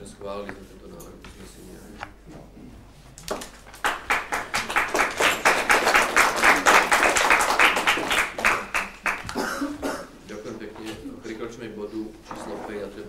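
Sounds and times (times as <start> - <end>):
group applauding: 3.2 - 9.8.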